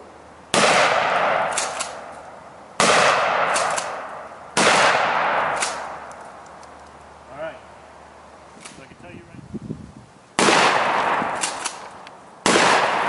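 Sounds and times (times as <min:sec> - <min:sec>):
shotgun shots: 0:00.5 - 0:02.2, 0:02.8 - 0:06.1, 0:10.4 - 0:13.0
shotgun pump clacks: 0:01.5 - 0:02.0, 0:03.5 - 0:04.0, 0:11.4 - 0:12.0.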